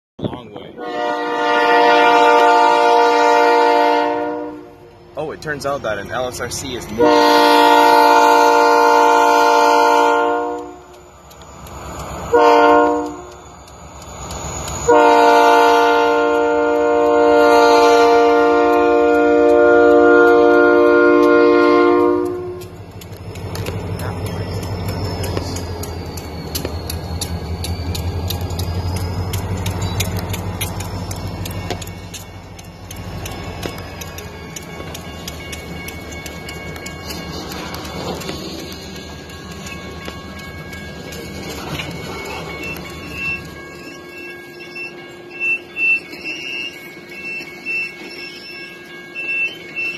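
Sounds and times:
crossing warning bell ringing: 0.5s - 49.9s
locomotive air horn blasts: 0.8s - 4.9s, 7.0s - 10.9s, 12.3s - 13.3s, 14.8s - 22.7s.

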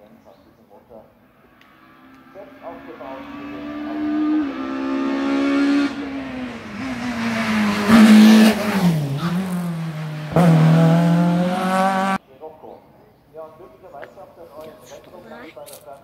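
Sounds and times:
racing car engine passing: 1.3s - 12.2s.

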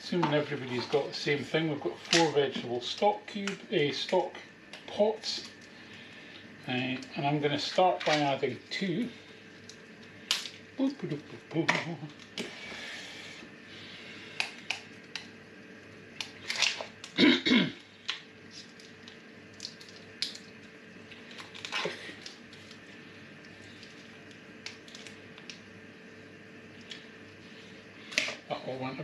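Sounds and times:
person clearing throat: 17.2s - 17.8s
plastic and foil crinkling: 18.0s - 25.6s.

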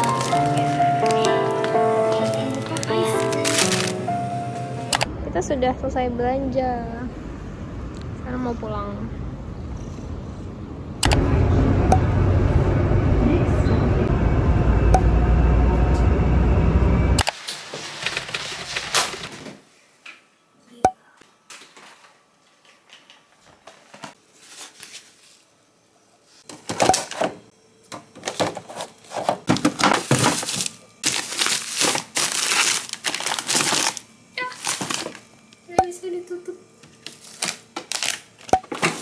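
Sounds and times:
plastic packaging crinkling: 0.0s - 4.1s, 17.4s - 19.4s, 30.0s - 35.3s, 37.0s - 39.0s
low vehicle rumble: 5.0s - 17.2s.

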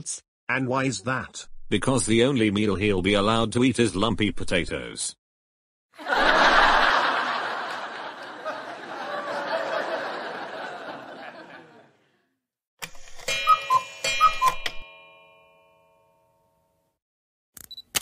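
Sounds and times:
canned audience laughter: 6.0s - 12.2s
clock ticks and chimes: 13.2s - 15.8s.

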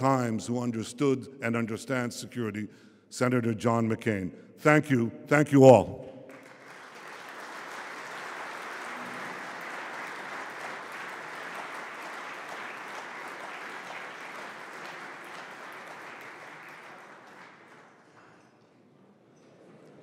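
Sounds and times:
audience applauding: 6.3s - 18.3s.

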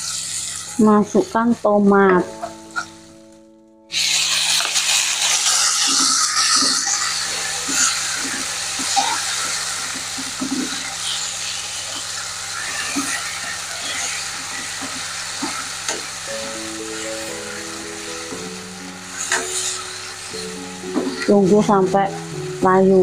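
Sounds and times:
tomatoes sizzling in oil: 0.0s - 23.0s
background music: 0.7s - 4.5s, 16.3s - 23.0s
spatula scraping pan: 4.0s - 16.1s, 19.1s - 21.7s.

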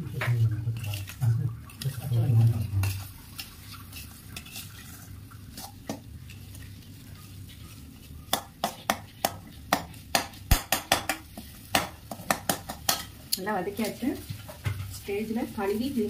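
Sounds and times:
faint frying sizzle: 0.0s - 16.0s
metal spoon scraping a pan: 1.8s - 9.3s
spoon knocking against pan: 8.3s - 13.2s.

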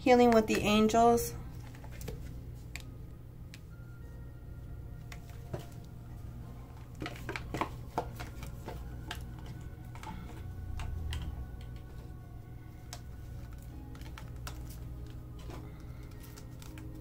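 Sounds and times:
low steady hum: 0.0s - 17.0s
cards shuffled clicking: 1.5s - 2.9s, 12.9s - 17.0s.

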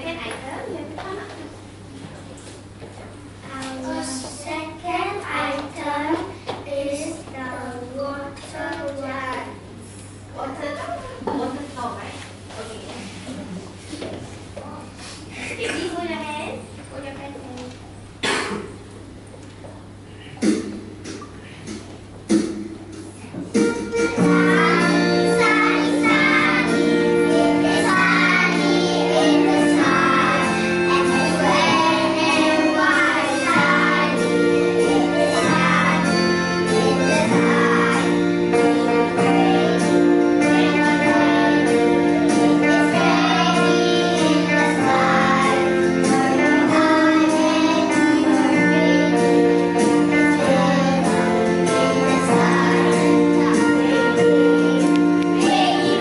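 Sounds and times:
children singing together: 23.6s - 56.0s.

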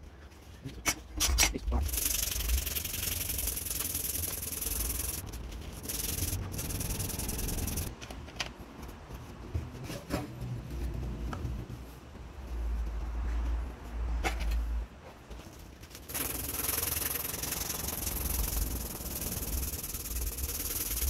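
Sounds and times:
sandpaper rasping on wooden handle: 1.8s - 7.9s, 16.1s - 21.0s.

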